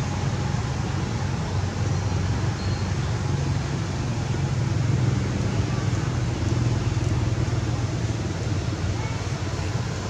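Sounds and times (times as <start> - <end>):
low rumbling background noise: 0.0 - 10.0.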